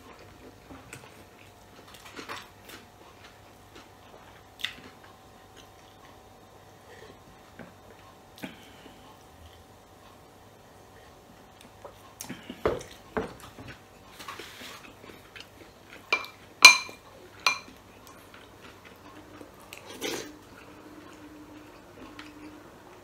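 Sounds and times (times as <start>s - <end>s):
metal spoon clinking glass bowl: 16.2s - 17.7s
tableware knocking on table: 16.2s - 17.7s.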